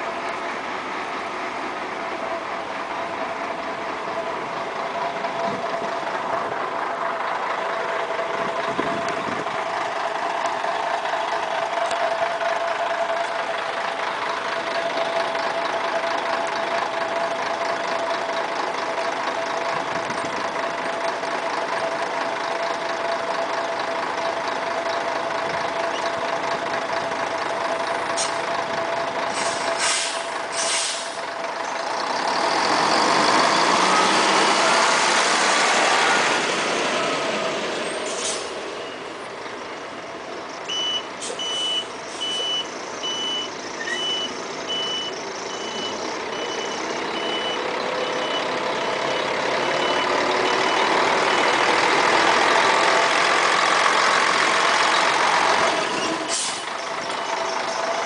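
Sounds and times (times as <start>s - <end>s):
bus diesel engine at low revs: 0.0s - 58.0s
short hisses of air: 29.4s - 31.2s, 56.3s - 56.7s.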